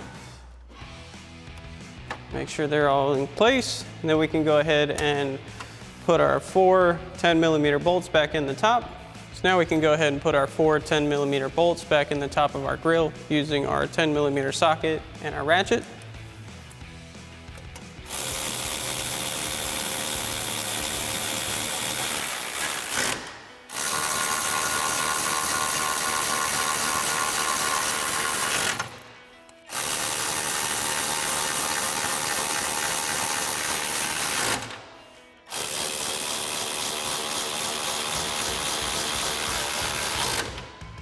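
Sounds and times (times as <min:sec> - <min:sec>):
electric ratchet running: 0:18.0 - 0:29.0, 0:29.7 - 0:34.8, 0:35.5 - 0:40.6.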